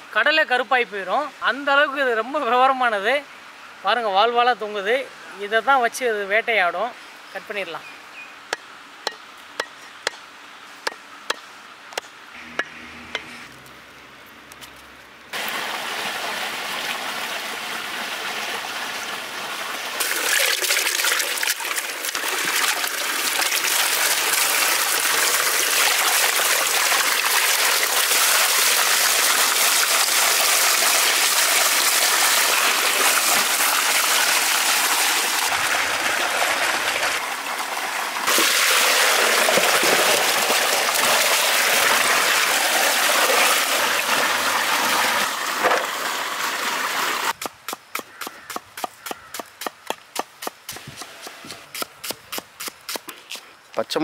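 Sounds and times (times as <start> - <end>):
water gushing into steel bowl: 20.0 - 46.5.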